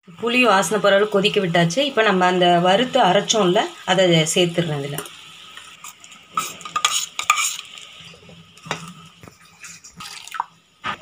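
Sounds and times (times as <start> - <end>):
ladle stirring boiling stew: 5.5 - 10.3.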